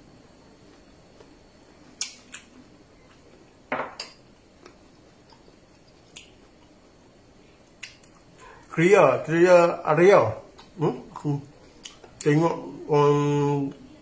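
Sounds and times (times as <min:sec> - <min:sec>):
bowl knocking on countertop: 0:03.7 - 0:04.0.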